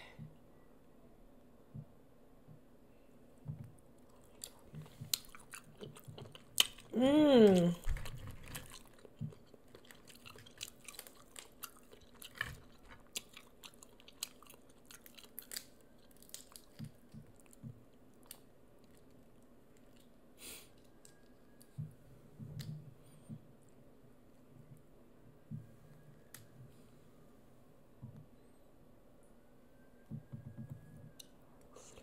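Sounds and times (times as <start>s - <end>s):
chewing: 4.0s - 21.8s.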